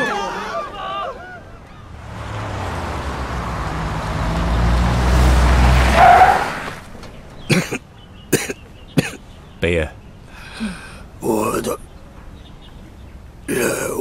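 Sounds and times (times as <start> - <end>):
road noise: 0.6 - 14.0
car engine driving: 1.6 - 7.5.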